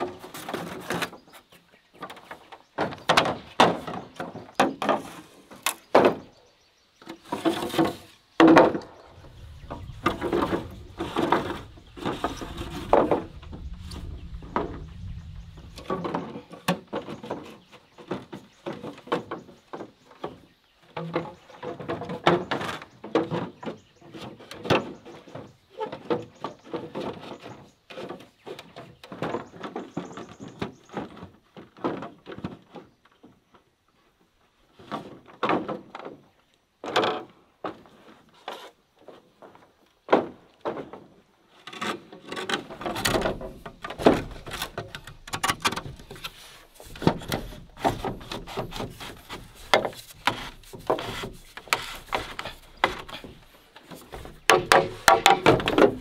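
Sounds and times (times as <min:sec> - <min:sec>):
bamboo poles knocking: 0:42.3 - 0:56.0.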